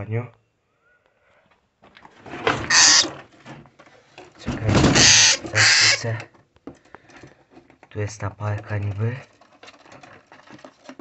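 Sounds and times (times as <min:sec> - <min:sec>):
parrot screeching: 0:02.6 - 0:03.2, 0:04.8 - 0:06.2.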